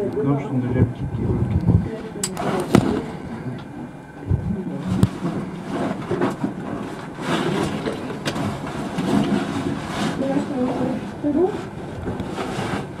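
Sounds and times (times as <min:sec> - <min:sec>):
gear scraping against rock: 0:05.2 - 0:13.0.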